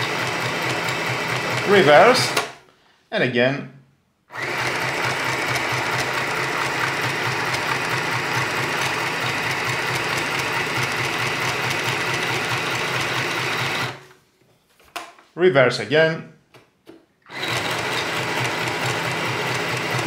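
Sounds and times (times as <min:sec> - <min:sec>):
sewing machine stitching: 0:00.0 - 0:02.6, 0:04.3 - 0:14.2, 0:17.3 - 0:20.0.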